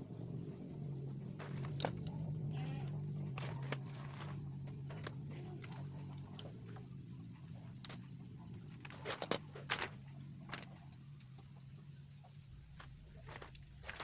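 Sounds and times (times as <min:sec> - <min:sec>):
steady low hum: 0:00.0 - 0:14.0
metal hose clinking and rattling: 0:02.8 - 0:06.8, 0:07.4 - 0:14.0.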